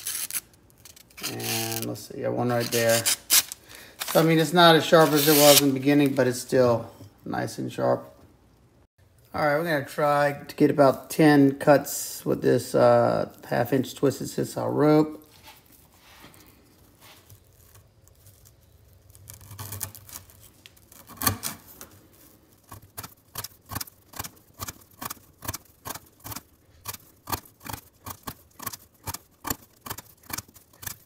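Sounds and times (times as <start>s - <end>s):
knife crunching through rope: 0.0s - 1.9s, 2.5s - 4.4s, 5.0s - 5.8s, 17.4s - 31.0s
knife cutting rope: 2.5s - 4.4s, 5.0s - 5.8s, 17.3s - 31.0s.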